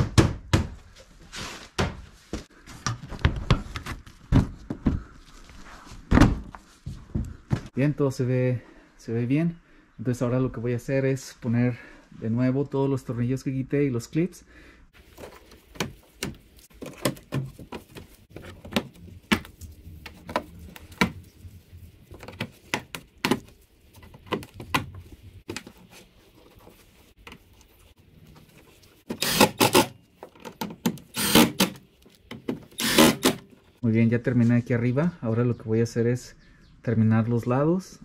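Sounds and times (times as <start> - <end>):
cordless drill driving screws: 29.1 - 29.9, 31.1 - 31.8, 32.8 - 33.4.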